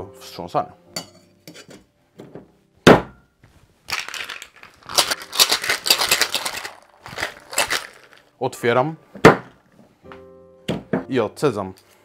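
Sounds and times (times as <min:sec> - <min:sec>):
ice rattling in metal shaker: 0:03.9 - 0:08.3.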